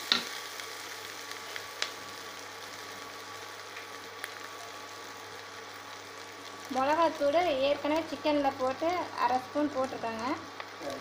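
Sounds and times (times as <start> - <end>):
faint pops from pan: 0.0 - 0.4
shallots sizzling in hot oil: 0.0 - 11.0.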